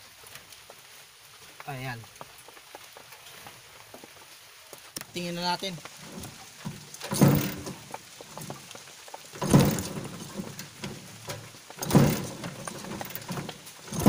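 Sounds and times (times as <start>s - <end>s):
motorcycle engine cranking: 6.1s - 8.6s, 9.4s - 14.0s.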